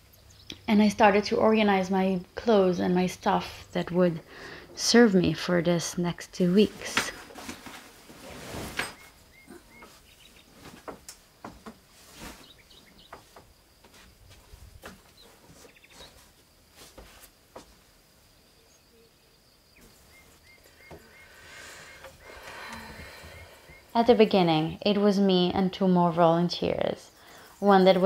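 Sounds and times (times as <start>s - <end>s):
clothes and bags rustling: 6.3s - 18.3s
faint bird chirps: 8.9s - 10.7s, 18.3s - 22.2s, 23.1s - 24.0s.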